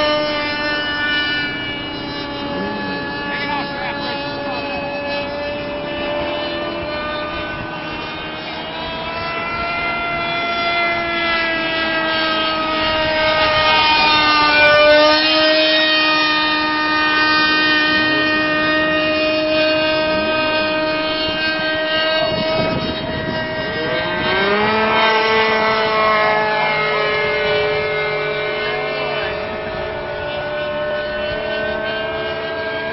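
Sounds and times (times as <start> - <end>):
model airplane engine and propeller: 0.0 - 32.9.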